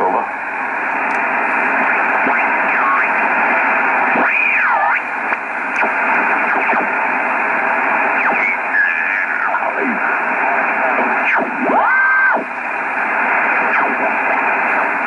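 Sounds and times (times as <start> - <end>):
radio band noise hiss: 0.0 - 15.0.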